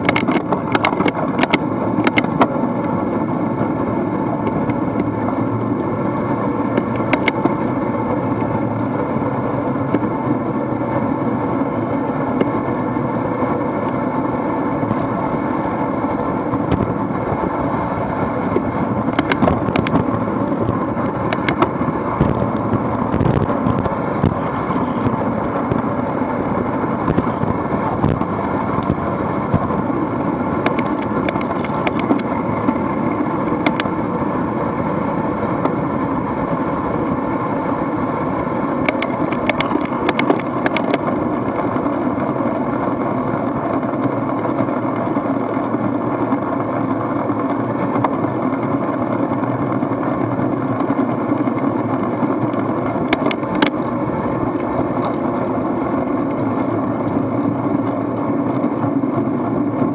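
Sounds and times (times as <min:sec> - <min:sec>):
bicycle tyre noise: 0:00.0 - 0:59.9.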